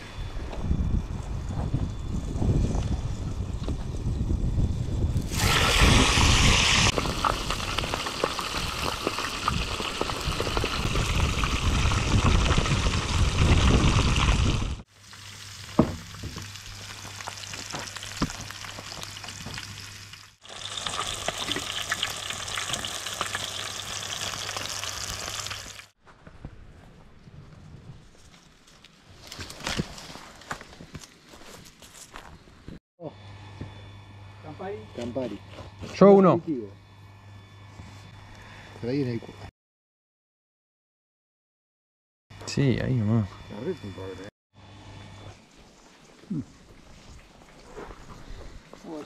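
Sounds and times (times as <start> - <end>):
food frying in hot oil: 5.3 - 25.9.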